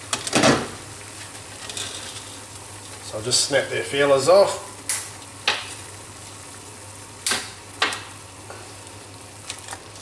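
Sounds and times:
water boiling and bubbling: 0:00.0 - 0:10.0.

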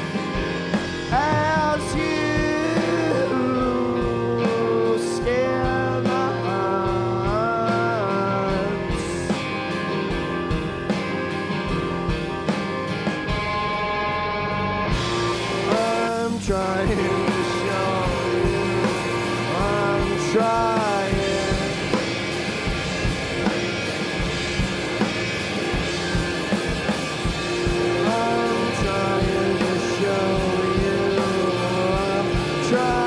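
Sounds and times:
drums: 0:00.0 - 0:33.0
electric guitar: 0:00.0 - 0:33.0
person singing: 0:01.0 - 0:09.4, 0:15.6 - 0:22.3, 0:27.8 - 0:33.0.

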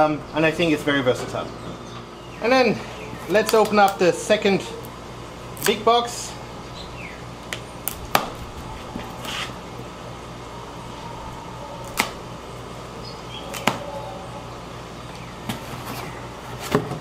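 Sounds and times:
low steady hum: 0:00.0 - 0:17.0
plastic straps snapping: 0:11.8 - 0:12.2.

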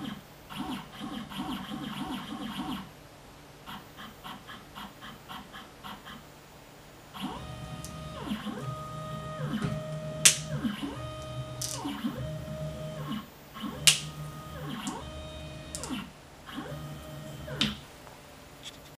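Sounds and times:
stepper motors whining: 0:07.2 - 0:17.8
sharp clicks: 0:09.8 - 0:12.3, 0:13.6 - 0:16.0.

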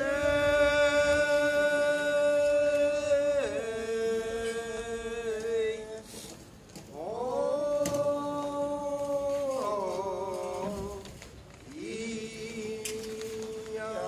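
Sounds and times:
person chanting long notes: 0:00.0 - 0:06.1.

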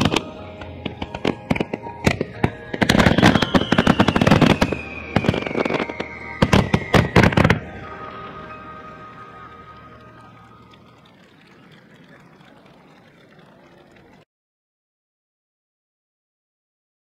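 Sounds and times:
fireworks bangs and crackling: 0:00.0 - 0:13.0
long falling tone: 0:02.1 - 0:14.2.

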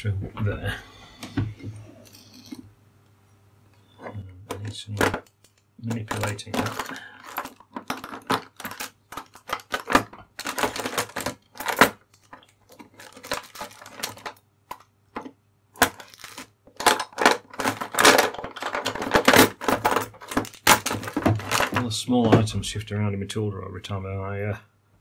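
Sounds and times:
scattered clicks and knocks: 0:04.0 - 0:22.5
tools clattering in drawer: 0:06.0 - 0:14.3, 0:15.8 - 0:22.5.

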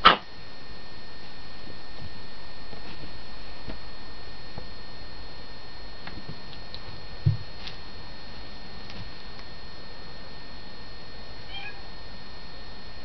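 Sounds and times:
steady hiss and hum: 0:00.0 - 0:13.0
short low thump: 0:07.2 - 0:07.5.

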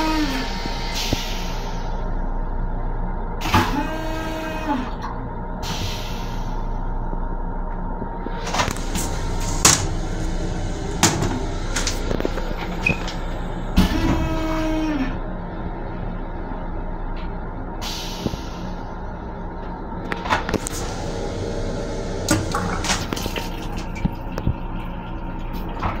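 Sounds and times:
train running low rumble: 0:00.0 - 0:26.0.

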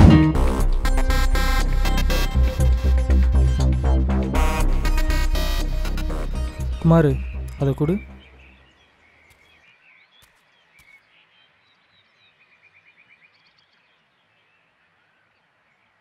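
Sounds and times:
faint birds chirping: 0:06.4 - 0:16.0.

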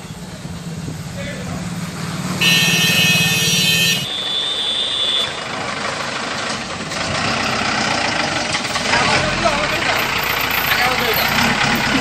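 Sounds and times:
road noise: 0:00.0 - 0:12.0
van engine running: 0:05.3 - 0:12.0.

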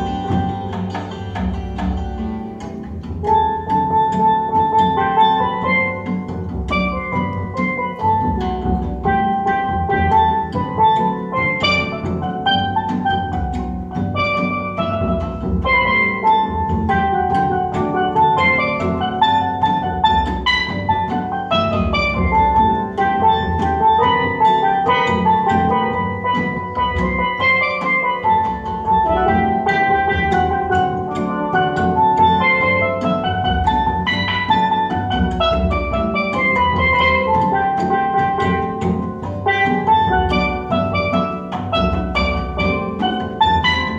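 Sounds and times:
steel pan and dulcimer tune: 0:00.0 - 0:43.9.

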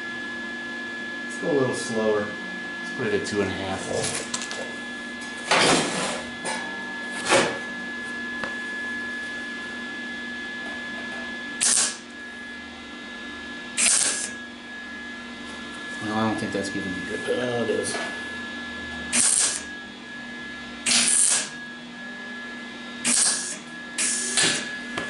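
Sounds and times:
steady welder hum: 0:00.0 - 0:25.0
welder arc bursts: 0:11.6 - 0:12.1, 0:13.8 - 0:14.4, 0:19.1 - 0:19.7, 0:20.8 - 0:21.6, 0:23.0 - 0:24.7.

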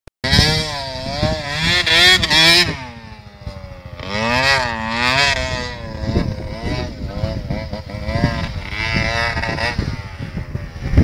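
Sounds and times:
dirt bike engine revving: 0:00.2 - 0:11.0.

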